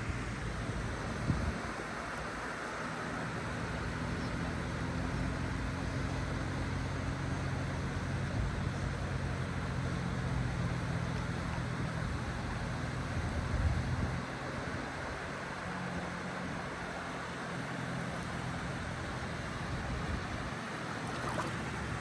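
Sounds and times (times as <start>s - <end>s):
low engine drone: 0.0s - 22.0s
wind: 0.0s - 22.0s.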